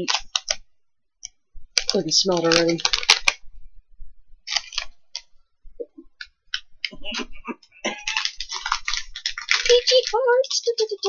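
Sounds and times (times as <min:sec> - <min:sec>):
plastic wrapper crinkling: 0:00.0 - 0:00.6, 0:01.7 - 0:03.6, 0:04.4 - 0:05.4, 0:07.9 - 0:11.0.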